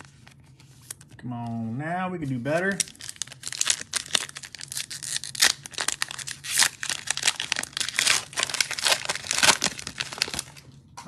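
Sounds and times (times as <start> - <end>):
foil wrapper tearing and crinkling: 2.6 - 10.6.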